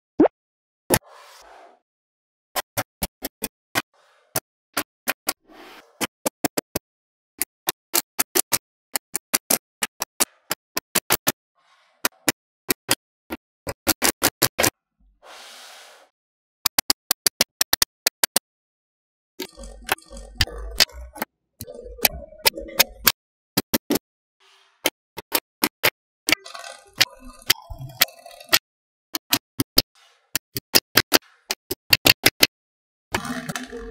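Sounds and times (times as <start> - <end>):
metal balls rattling and scraping: 26.3 - 28.6.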